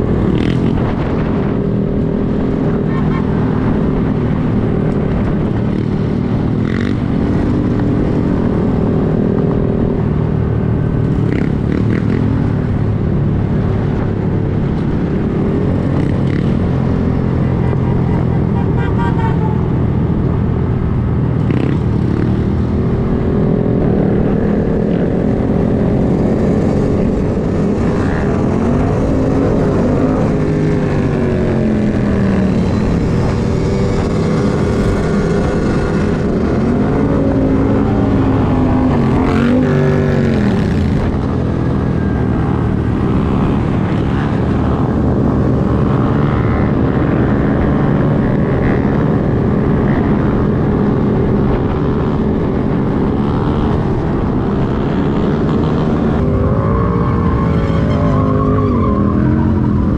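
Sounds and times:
motorcycle engines revving: 0.0 - 59.9.

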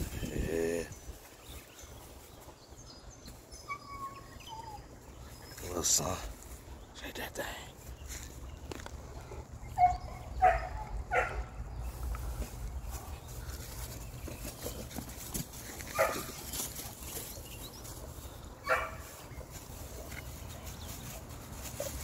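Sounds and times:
dogs barking: 9.2 - 11.7, 15.7 - 16.9, 18.6 - 22.0.

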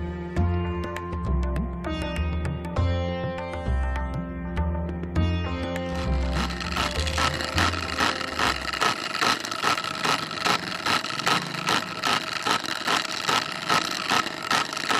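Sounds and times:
low music tones: 0.0 - 11.4
rhythmic mechanical scraping: 5.9 - 14.9
steady high whine: 6.0 - 14.9.

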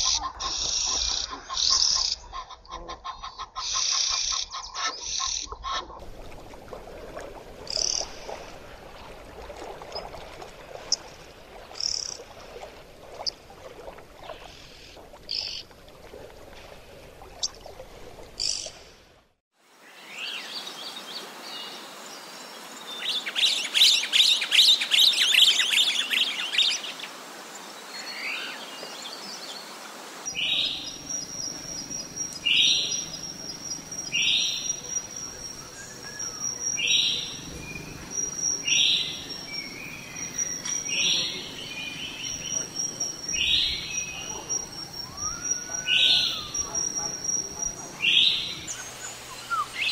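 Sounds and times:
starling short calls: 30.3 - 49.9
oxpecker chattering calls: 30.4 - 49.9.

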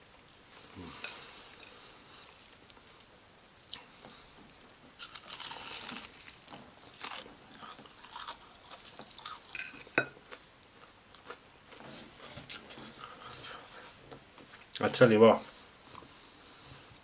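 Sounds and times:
crunching fried chicken: 5.0 - 10.4.

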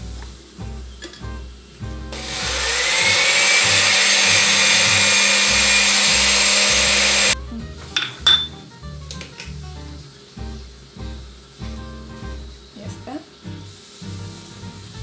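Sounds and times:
electric blender running: 2.1 - 7.4.

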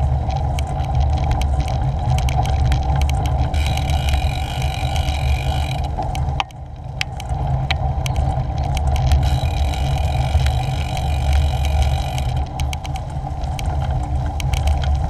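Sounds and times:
bicycle tyres rumbling on rough path: 0.0 - 15.0
ticks and rattles: 0.0 - 15.0.

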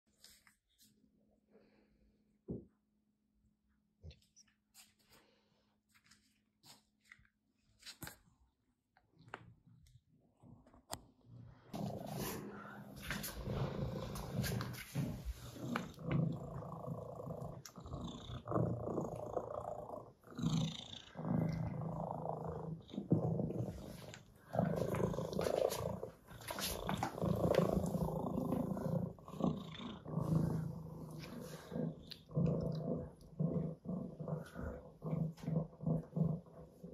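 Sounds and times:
cat purring: 11.5 - 36.9.

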